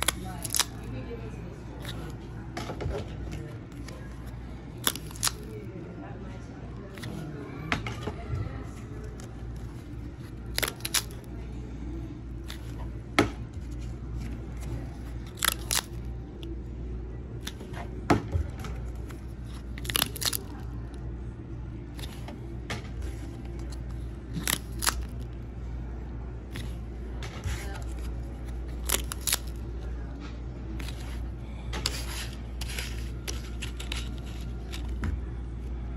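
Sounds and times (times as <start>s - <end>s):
paper tabs ripping: 0.0s - 0.9s, 3.7s - 5.6s, 6.9s - 7.2s, 9.0s - 11.3s, 12.4s - 12.8s, 13.6s - 16.1s, 19.0s - 20.8s, 22.0s - 22.2s, 23.1s - 25.3s, 27.4s - 29.6s, 30.8s - 31.2s, 31.8s - 35.0s
steady low hum: 0.0s - 35.9s.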